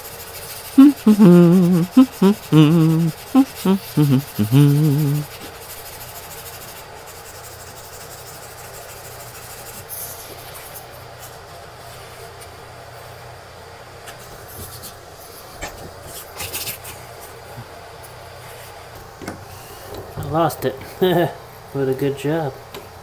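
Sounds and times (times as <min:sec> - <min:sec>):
sandpaper rubbing: 0:00.0 - 0:10.8.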